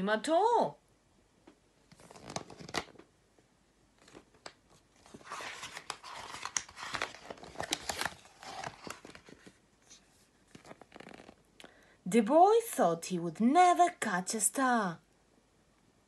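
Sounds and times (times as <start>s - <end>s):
paper rustling and crinkling: 1.9s - 3.0s, 4.0s - 11.4s
book pages turning: 1.9s - 3.1s, 4.0s - 11.4s.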